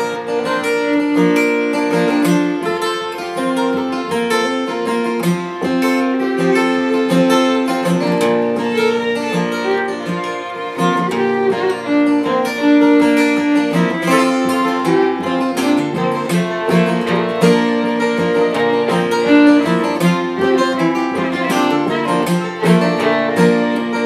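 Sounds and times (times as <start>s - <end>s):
acoustic guitars strumming: 0.0s - 24.0s
fiddle melody: 0.0s - 24.0s.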